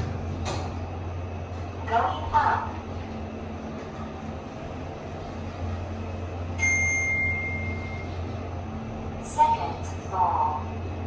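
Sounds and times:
lift car humming: 0:00.0 - 0:11.0
electronic arrival chime: 0:06.6 - 0:08.1.

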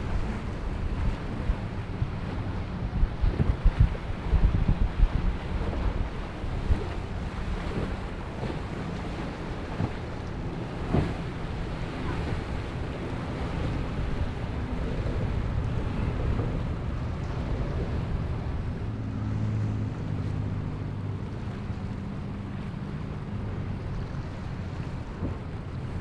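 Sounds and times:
outboard motor hum: 0:00.0 - 0:26.0
rushing water: 0:00.0 - 0:26.0
wind buffeting microphone: 0:00.0 - 0:26.0.

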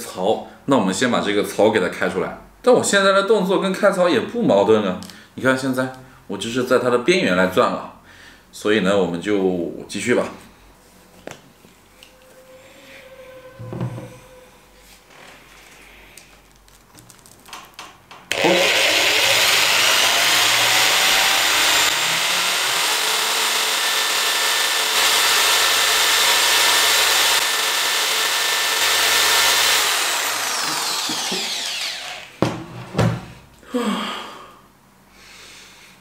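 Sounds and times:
electric drill boring into wood: 0:18.3 - 0:32.4.

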